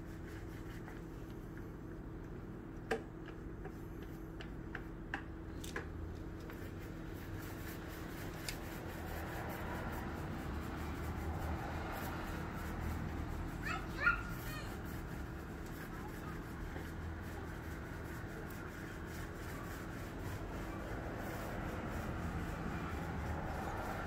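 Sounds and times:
paint roller rolling: 6.3s - 24.0s.

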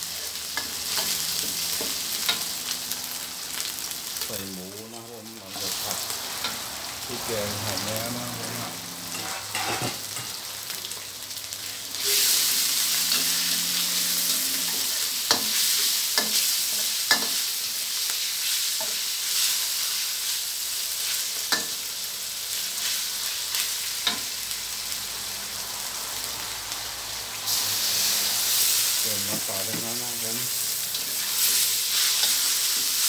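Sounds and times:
meat sizzling in oil: 0.0s - 33.0s
metal spatula scraping wok: 5.6s - 10.4s, 11.9s - 17.4s, 27.5s - 33.0s.

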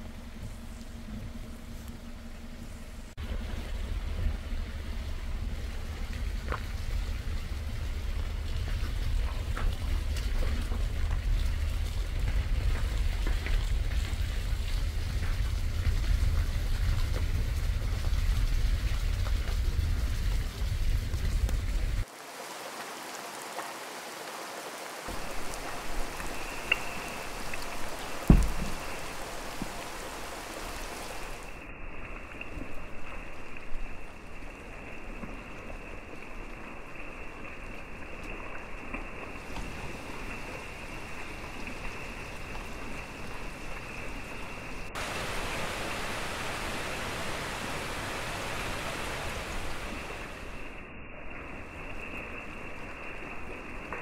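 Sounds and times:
low rumble: 0.0s - 22.1s
rain on foliage: 3.2s - 54.0s
dull thump: 28.2s - 29.0s.

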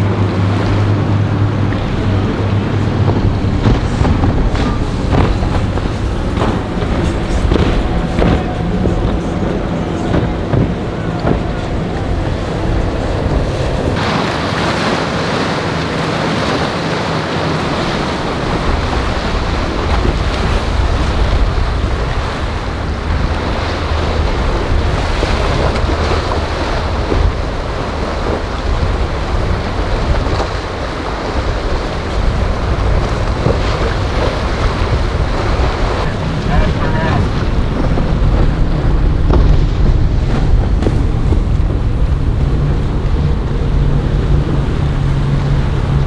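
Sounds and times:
boat engines droning: 0.0s - 46.0s
waves breaking: 0.0s - 46.0s
wind buffeting microphone: 0.0s - 46.0s.

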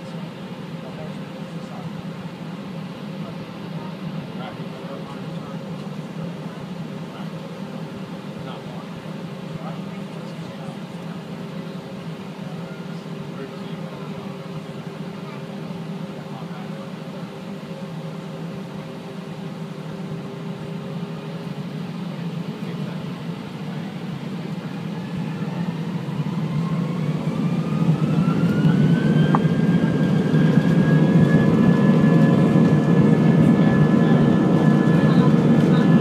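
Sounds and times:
jet engines spooling up: 10.2s - 36.0s.

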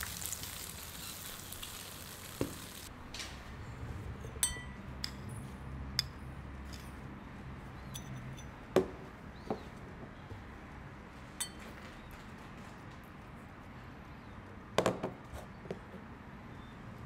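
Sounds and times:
spoon and cups clinking on glass bowl: 4.2s - 7.0s, 7.8s - 8.6s, 11.4s - 11.8s.

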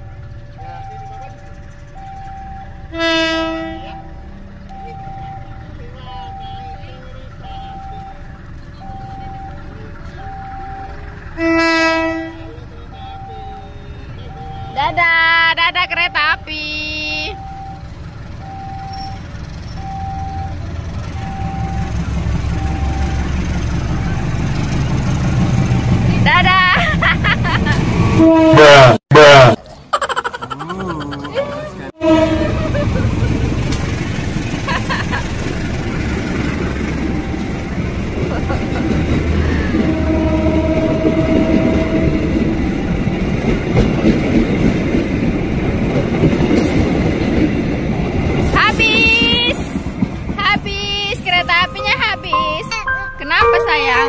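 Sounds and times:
level crossing warning tone: 0.0s - 11.9s, 12.6s - 24.4s, 36.7s - 38.2s, 50.6s - 54.0s
locomotive engine rumble: 0.0s - 54.0s.

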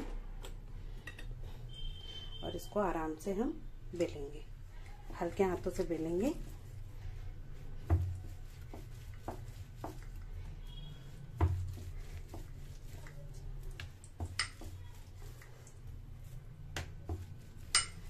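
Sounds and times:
rolling pin on marble board: 7.6s - 15.5s, 16.2s - 18.0s.

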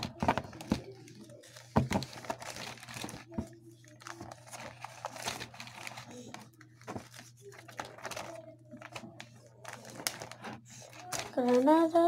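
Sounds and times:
plastic pages crinkling: 0.0s - 12.0s
plastic sheets crackling: 0.0s - 12.0s.

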